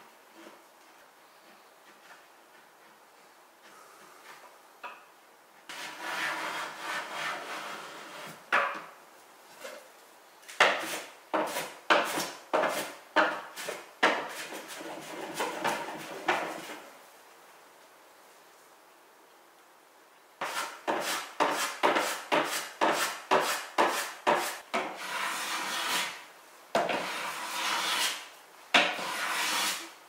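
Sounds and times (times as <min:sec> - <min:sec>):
hand tool scraping wood: 0:05.7 - 0:08.4, 0:10.5 - 0:16.9, 0:20.4 - 0:26.2, 0:26.8 - 0:30.0.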